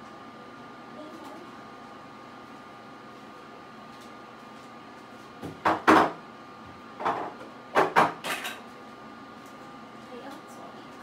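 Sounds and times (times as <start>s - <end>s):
sharp knocks and clatters: 5.4s - 6.2s, 7.0s - 8.6s.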